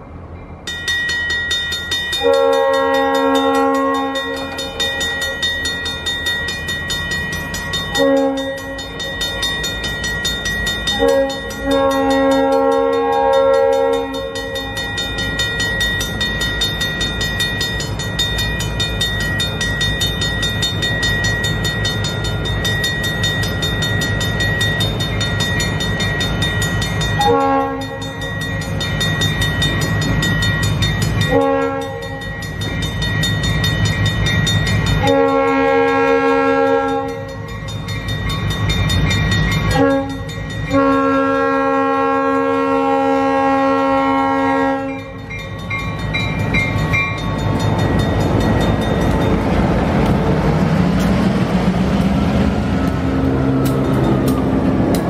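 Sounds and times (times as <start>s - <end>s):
locomotive engine rumble: 0.0s - 55.0s
locomotive horn blasts: 2.2s - 5.1s, 7.9s - 9.0s, 10.9s - 14.9s, 27.2s - 28.2s, 31.3s - 32.4s, 35.0s - 37.4s, 39.7s - 45.2s.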